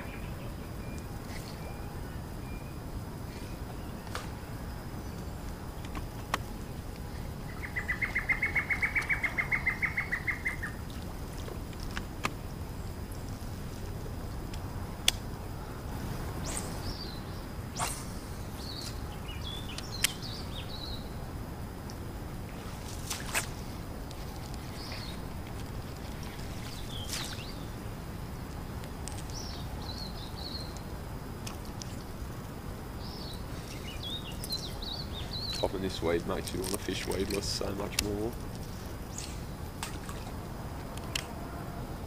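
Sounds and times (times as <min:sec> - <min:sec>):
small birds chirping: 0:00.0 - 0:21.2, 0:21.9 - 0:40.4
low background hiss: 0:00.0 - 0:42.0.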